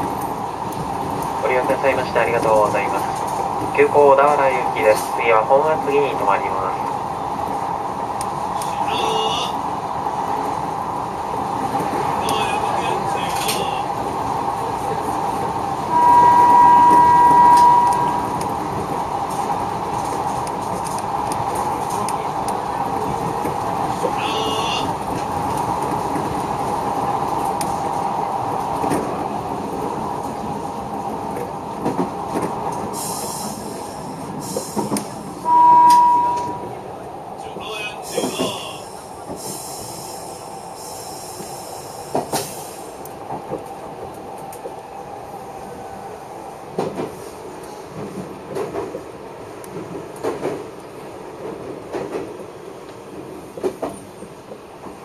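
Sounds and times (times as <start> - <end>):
train wheels rushing on rail: 0.0 - 55.0
steady high tone: 15.9 - 18.2, 35.5 - 36.7.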